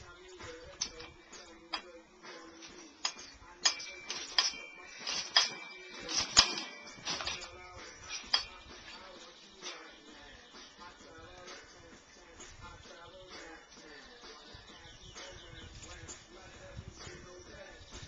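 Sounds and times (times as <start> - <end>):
trampoline springs clinking: 0.1 - 11.8.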